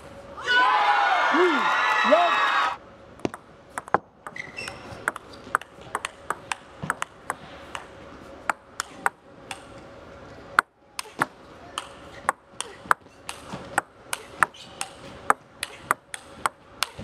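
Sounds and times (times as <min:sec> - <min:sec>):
table tennis ball clicking: 0:03.2 - 0:07.9, 0:08.5 - 0:09.8, 0:10.6 - 0:17.0.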